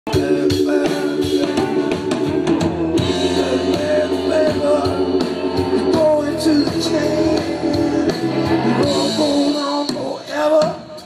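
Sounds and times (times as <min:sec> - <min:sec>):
drum kit: 0:00.1 - 0:11.0
electric guitars: 0:00.1 - 0:11.0
person singing: 0:00.1 - 0:11.0.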